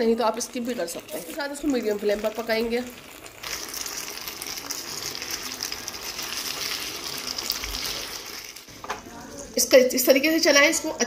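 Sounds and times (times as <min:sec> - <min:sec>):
chicken sizzling in frying pan: 0:00.0 - 0:09.0.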